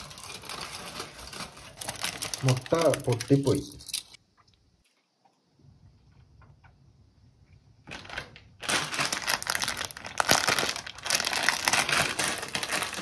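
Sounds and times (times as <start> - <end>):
plastic packet crinkling: 0.0 - 4.2, 7.8 - 13.0.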